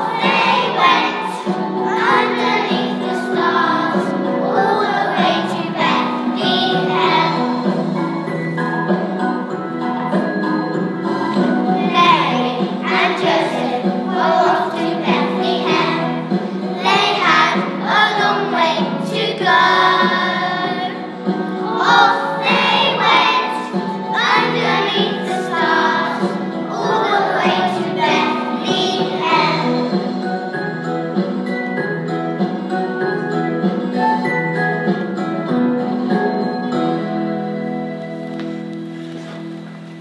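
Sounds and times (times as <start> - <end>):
children's choir singing: 0.0 - 8.6, 9.4 - 30.3
instrumental accompaniment: 0.0 - 40.0.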